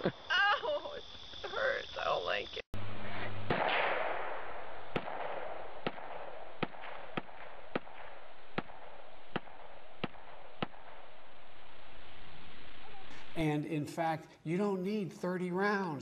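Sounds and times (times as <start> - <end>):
constant background hiss: 0.0 - 16.0
rifle shots cracking: 3.4 - 11.2.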